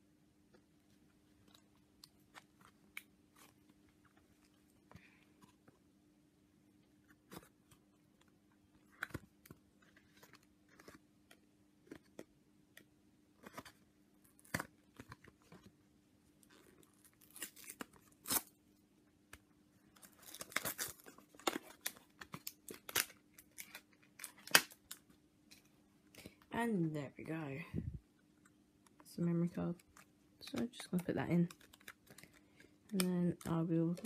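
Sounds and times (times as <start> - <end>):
plastic packaging being torn open: 16.5 - 18.6, 20.0 - 25.0, 29.9 - 34.0.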